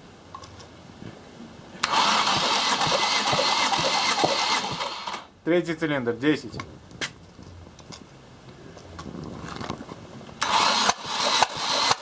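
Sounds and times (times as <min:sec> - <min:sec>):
engine cranking over: 0:01.8 - 0:05.3, 0:10.4 - 0:12.0.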